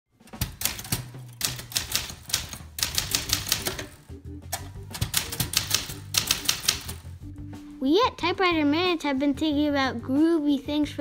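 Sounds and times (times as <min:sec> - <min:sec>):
typewriter key strikes: 0:00.2 - 0:04.0, 0:04.6 - 0:07.0
background music with bass line: 0:02.6 - 0:11.0.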